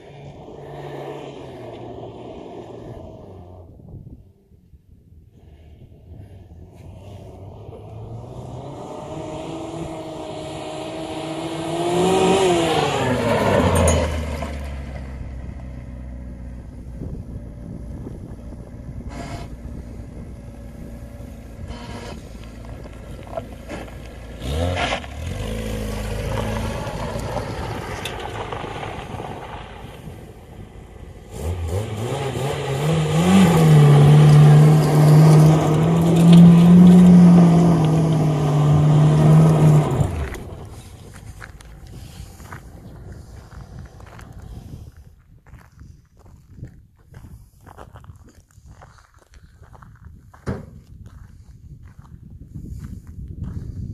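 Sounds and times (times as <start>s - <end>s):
car engine revving and idling: 6.5s - 45.0s.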